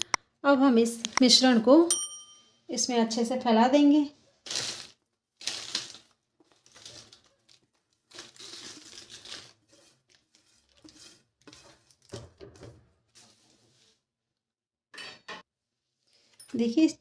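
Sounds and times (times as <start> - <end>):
paper and plate crinkling: 4.4 - 12.3.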